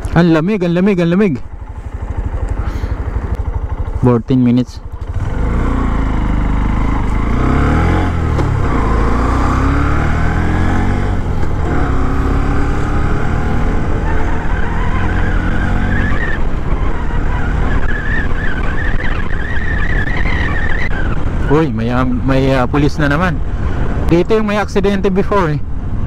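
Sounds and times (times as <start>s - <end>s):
motorcycle engine accelerating: 0.0s - 24.6s.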